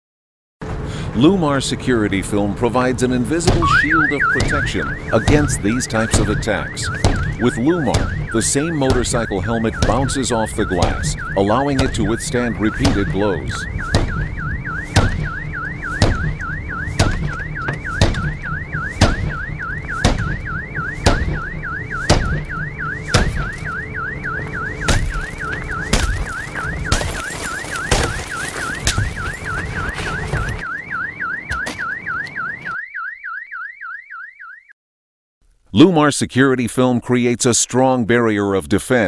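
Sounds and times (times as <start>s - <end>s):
car alarm warbling: 3.4s - 34.8s
helmet striking car window: 3.5s - 10.2s, 12.8s - 13.2s, 13.8s - 30.6s.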